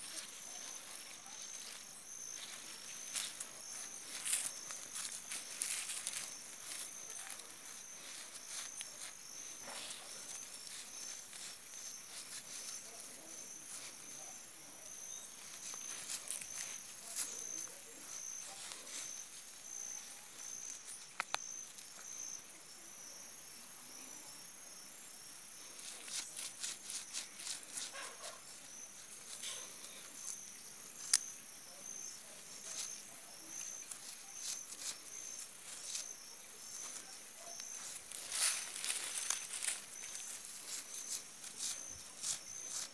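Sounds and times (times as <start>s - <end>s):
insect chirping: 0.0s - 42.9s
hands scraping soil: 25.7s - 31.4s, 32.2s - 42.9s.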